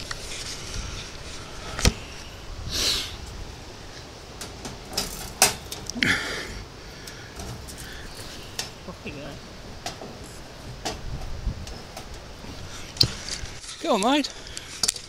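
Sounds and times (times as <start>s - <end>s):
short breathy bursts: 0.3s - 3.3s
wire cage knocking and rattling: 4.4s - 5.9s.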